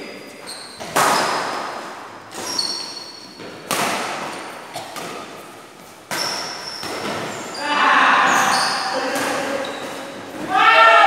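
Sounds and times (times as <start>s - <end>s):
shoes squeaking on court: 0.1s - 10.6s
racket hitting shuttlecock: 0.7s - 7.5s, 8.2s - 10.5s.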